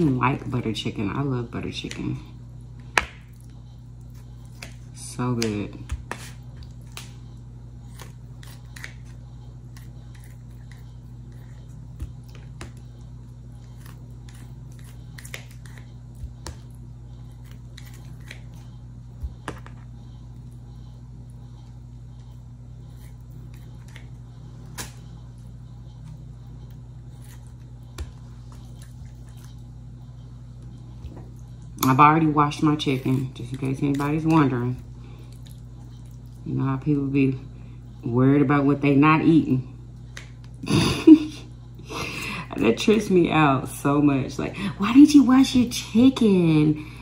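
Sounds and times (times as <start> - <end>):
steady low hum: 0.0 - 47.0.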